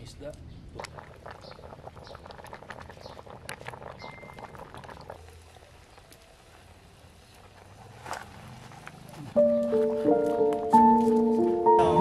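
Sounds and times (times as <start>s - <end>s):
wood fire crackling and popping: 0.7s - 6.2s.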